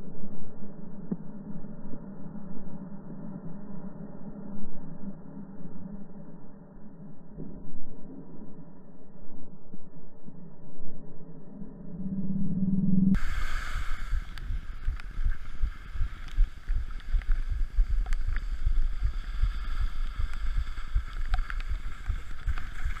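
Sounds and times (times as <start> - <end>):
muffled hum: 0.0 - 23.0
wind on microphone: 12.2 - 23.0
skis scraping over snow: 13.2 - 23.0.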